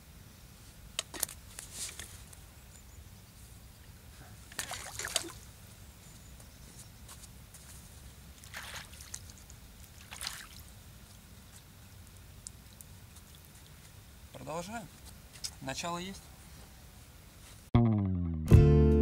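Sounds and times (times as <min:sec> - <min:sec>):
light water splashing at bank: 0:04.4 - 0:05.6, 0:08.2 - 0:14.4
fish splashing into water: 0:04.5 - 0:05.4, 0:08.4 - 0:10.7.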